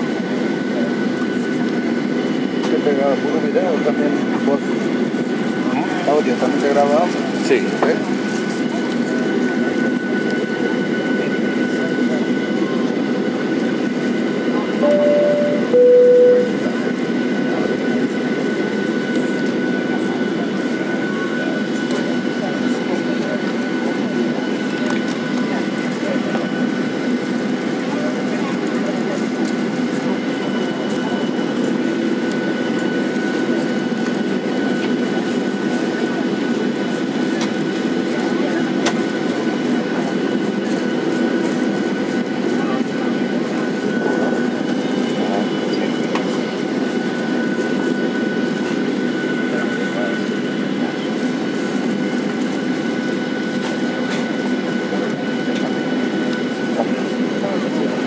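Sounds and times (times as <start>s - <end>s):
aircraft engines rumbling: 0.0s - 58.0s
thin steady whine: 14.6s - 16.8s.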